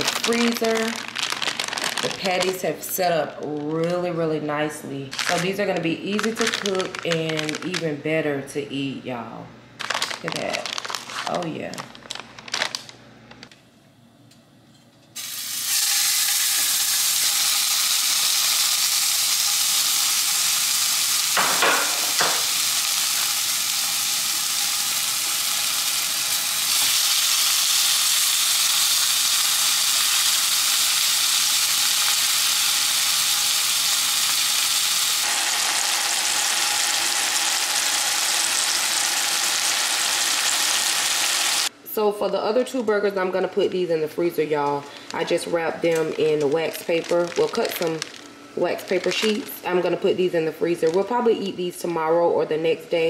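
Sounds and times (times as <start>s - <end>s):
burger patties sizzling in a pan: 15.2s - 41.7s.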